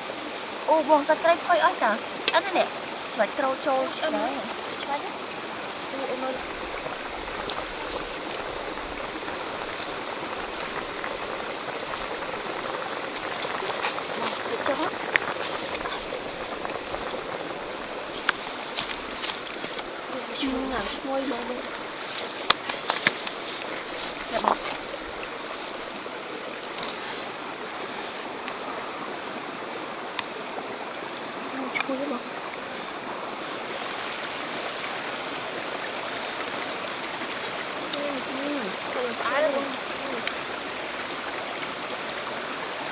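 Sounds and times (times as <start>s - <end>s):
creek rushing: 0.0s - 42.9s
soup boiling in a wok: 6.5s - 18.2s.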